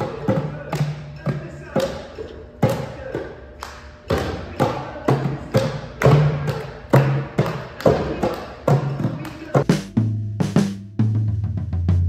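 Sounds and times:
hand claps: 0.0s - 9.9s
hand drums beating: 4.1s - 12.0s.

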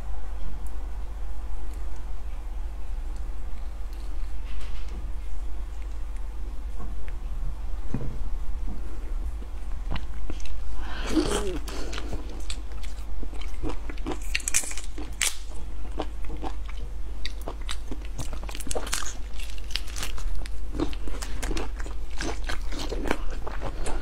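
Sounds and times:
chewing raw shellfish: 9.4s - 24.0s.

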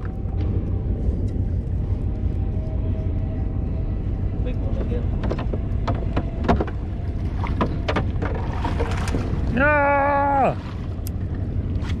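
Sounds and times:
wind: 0.0s - 12.0s
water splashing: 6.8s - 12.0s.

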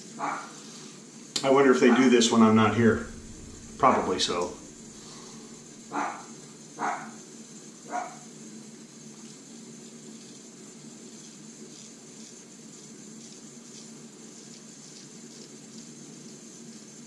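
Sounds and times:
dog barking: 0.2s - 0.6s, 1.8s - 2.1s, 5.9s - 7.2s, 7.9s - 8.3s
steady low hum: 1.4s - 8.0s.

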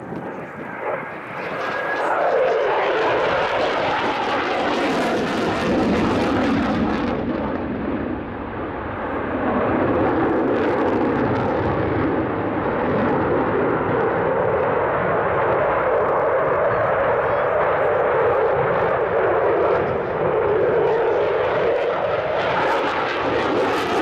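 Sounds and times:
jet engines roaring: 0.0s - 24.0s.

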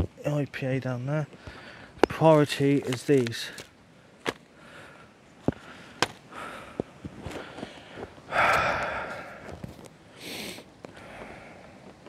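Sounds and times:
breathy exhale: 1.4s - 2.0s, 4.6s - 9.6s, 10.2s - 11.8s
short sniff: 10.2s - 10.7s.

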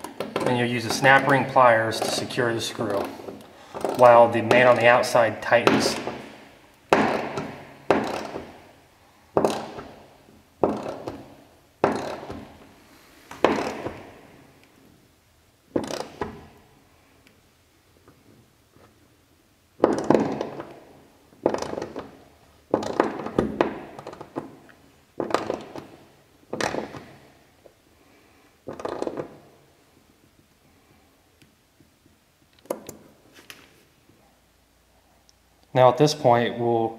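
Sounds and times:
hollow metal knocks: 6.9s - 8.6s.

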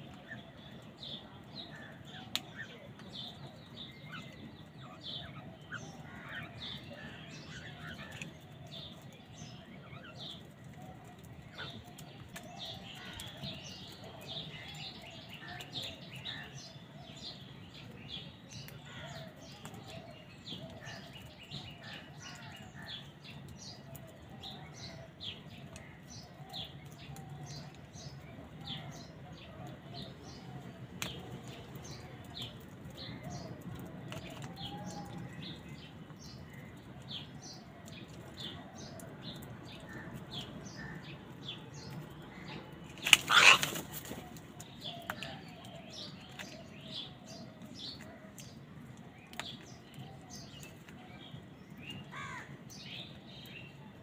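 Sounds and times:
crows calling: 42.3s - 44.4s, 52.1s - 52.6s.

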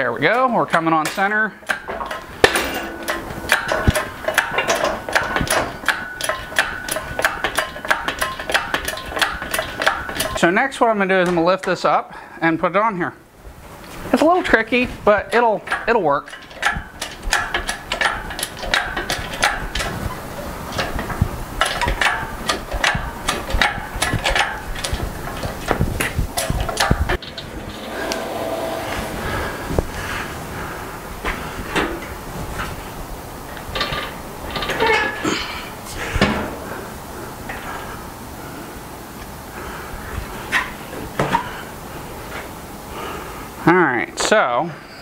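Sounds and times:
metallic clanks and clicks: 0.2s - 10.5s, 15.6s - 29.0s, 33.5s - 35.4s
shop crane metallic clicks: 1.0s - 10.4s
low rumble: 27.2s - 31.3s.

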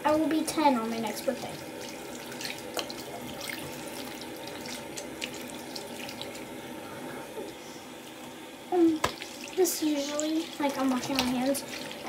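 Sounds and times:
sink tap running: 0.2s - 6.6s, 8.7s - 12.0s
hands washing with small splashes: 1.7s - 6.4s, 9.0s - 12.0s.

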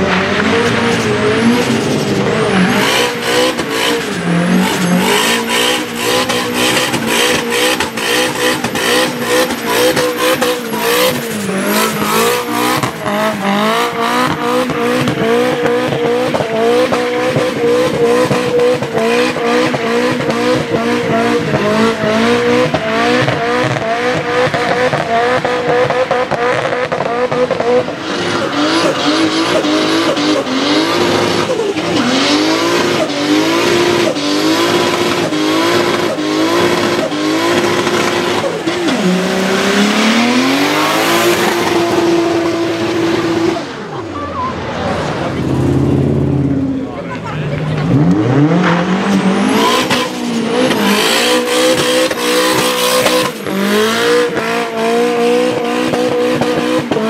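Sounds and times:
car engine revving: 0.0s - 57.0s.

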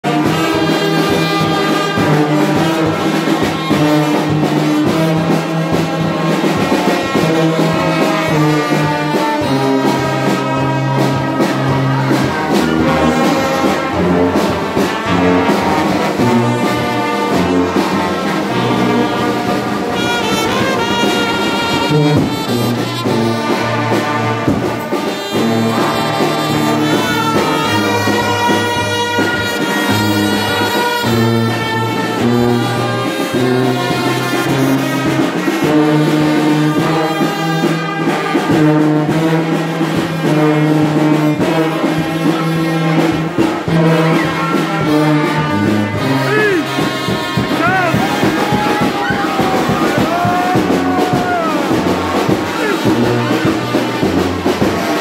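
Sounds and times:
brass band playing: 0.0s - 55.0s
bass drum beat: 43.0s - 55.0s.

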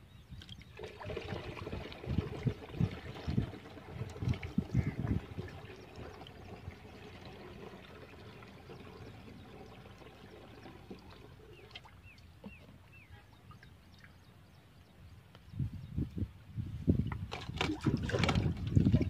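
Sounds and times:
water pouring into plastic tank: 0.4s - 11.9s, 17.1s - 19.0s.

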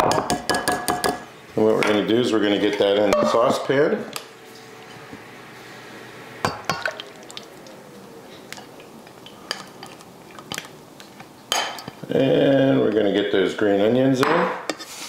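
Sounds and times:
glass bowl clinking on pan: 6.4s - 7.0s, 11.5s - 12.0s.

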